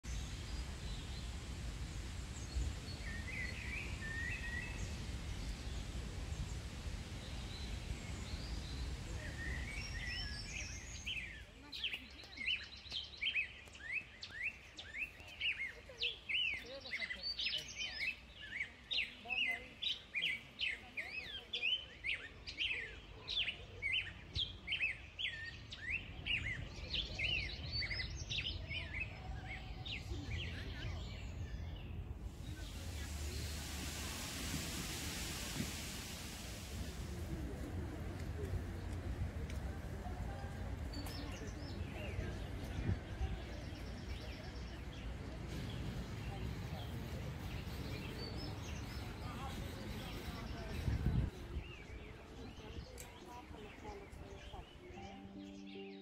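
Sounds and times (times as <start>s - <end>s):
steady low rumble: 0.0s - 10.8s, 29.6s - 44.0s
small birds chirping: 0.0s - 56.0s.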